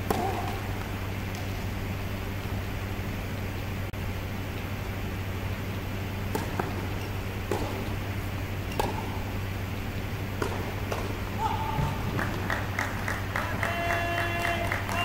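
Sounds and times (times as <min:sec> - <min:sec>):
tennis balls bouncing: 0:00.0 - 0:02.5, 0:05.6 - 0:15.0
steady low hum: 0:00.0 - 0:15.0
tennis ball racket pops: 0:06.3 - 0:06.8, 0:07.5 - 0:07.9.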